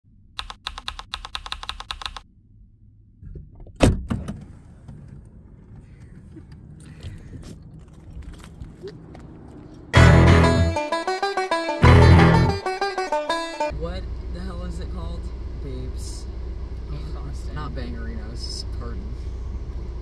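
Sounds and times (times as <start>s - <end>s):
typewriter-style key clicks: 0.4s - 2.2s
loud thunk: 3.2s - 4.4s.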